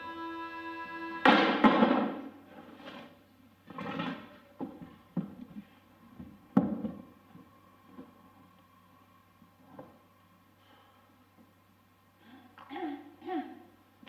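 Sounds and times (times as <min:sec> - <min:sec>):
held musical note: 0:00.0 - 0:02.0.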